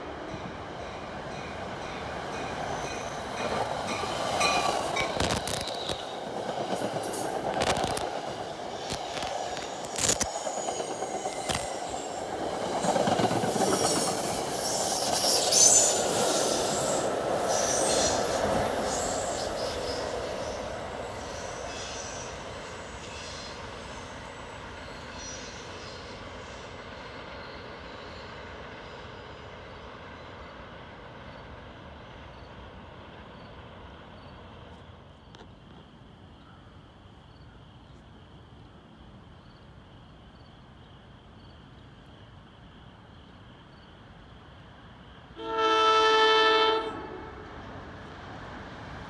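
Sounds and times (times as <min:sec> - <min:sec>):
train rumble: 0:00.0 - 0:36.2
train air horn blast: 0:45.4 - 0:47.6.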